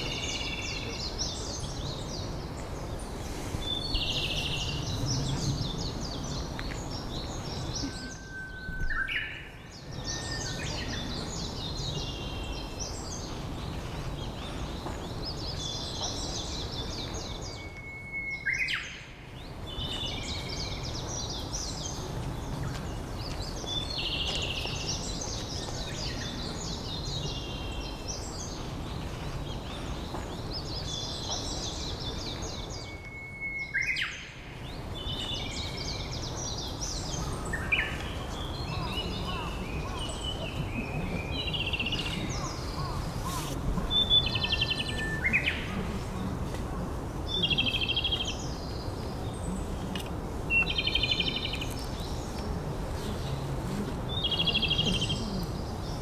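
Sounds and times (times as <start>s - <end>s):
bird song whistle and trill: 7.2s - 11.1s, 16.8s - 19.1s, 32.5s - 34.4s.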